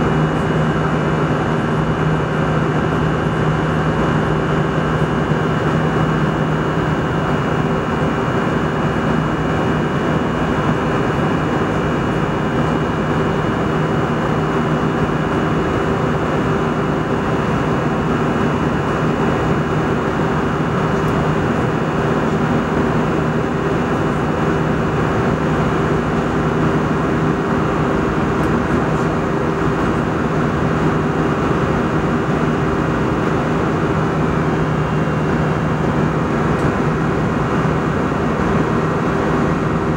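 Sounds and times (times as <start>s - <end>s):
airliner cabin airflow and engine: 0.0s - 39.9s
steady low hum: 0.0s - 39.9s.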